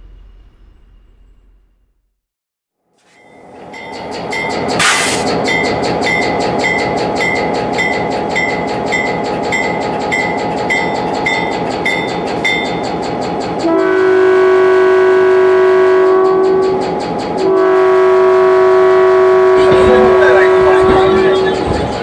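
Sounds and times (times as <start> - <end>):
train running with rumble: 3.0 - 22.0
train horn chord: 13.6 - 21.9.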